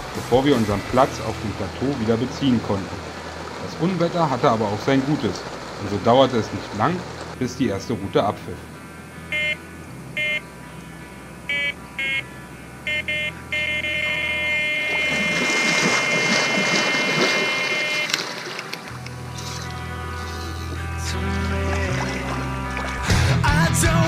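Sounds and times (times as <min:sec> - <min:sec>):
water splashing: 0:00.0 - 0:08.1, 0:12.9 - 0:23.4
bite alarm continuous tone: 0:09.2 - 0:21.0
bite alarm beeps: 0:09.3 - 0:09.6, 0:10.2 - 0:10.5, 0:11.5 - 0:18.7.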